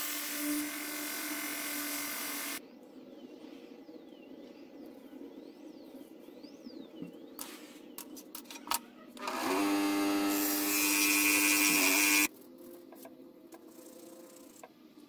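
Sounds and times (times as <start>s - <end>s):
electric scroll saw running: 0.0s - 2.6s, 9.2s - 12.3s.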